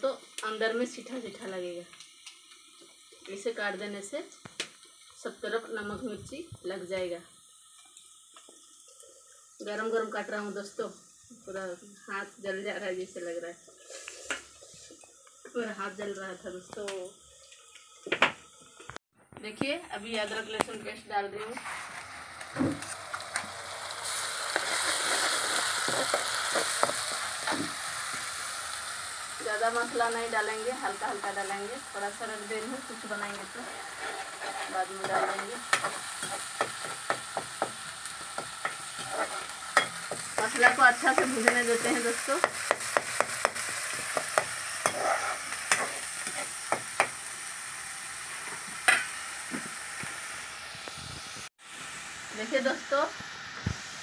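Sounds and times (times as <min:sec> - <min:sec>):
onions sizzling in hot oil: 0:00.0 - 0:19.0, 0:19.6 - 0:54.0
steel ladle scraping a pan: 0:33.2 - 0:37.0, 0:38.1 - 0:40.5, 0:43.8 - 0:47.1.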